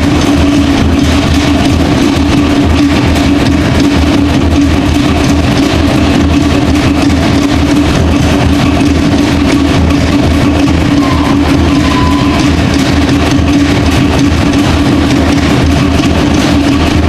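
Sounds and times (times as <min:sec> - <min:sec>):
fast even drumbeat: 0:00.0 - 0:17.0
steady low hum: 0:00.0 - 0:17.0
loud dance music: 0:10.6 - 0:13.1.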